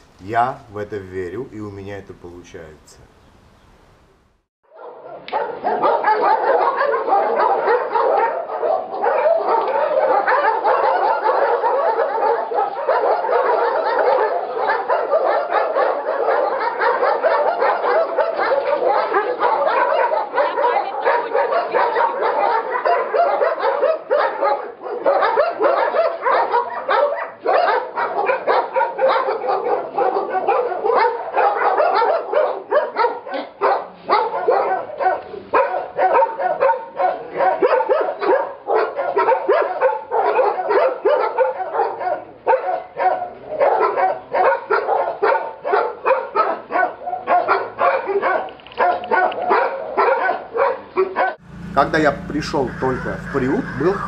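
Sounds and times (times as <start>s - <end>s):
many dogs barking: 4.7s - 54.0s.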